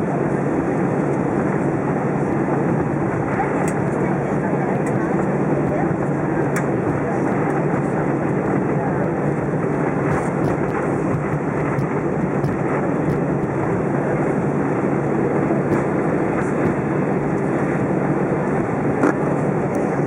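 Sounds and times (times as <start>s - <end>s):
airplane cabin engine noise: 0.0s - 20.0s.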